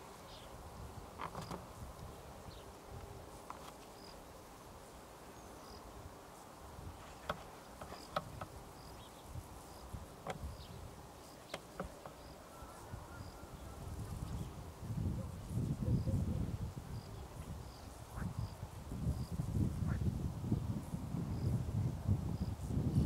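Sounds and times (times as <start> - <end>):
insect chirping: 3.4 - 14.6, 15.4 - 21.7.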